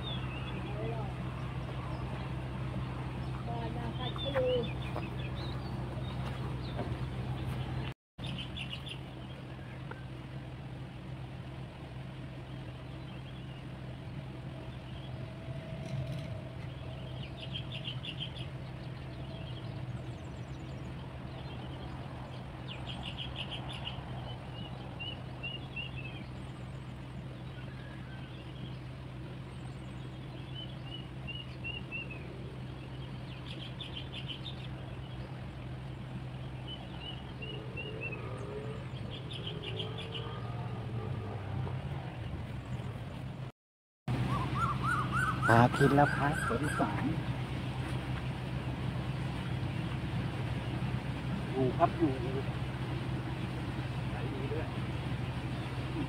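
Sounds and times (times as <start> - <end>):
small birds chirping: 0.0 - 43.5, 44.1 - 56.0.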